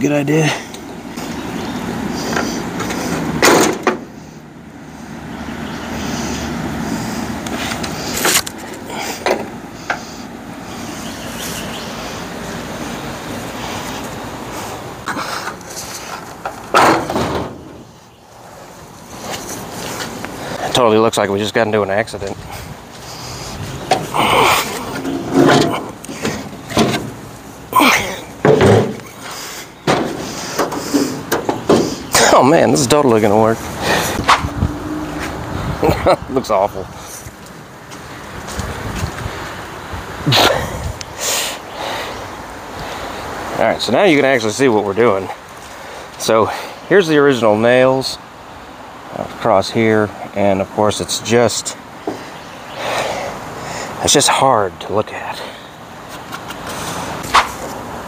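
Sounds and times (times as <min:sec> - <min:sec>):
continuous rough noise: 0:00.0 - 0:58.0
metal knocks and clanks: 0:02.8 - 0:04.1, 0:16.4 - 0:17.8, 0:24.9 - 0:27.2, 0:28.4 - 0:29.1, 0:29.8 - 0:32.1.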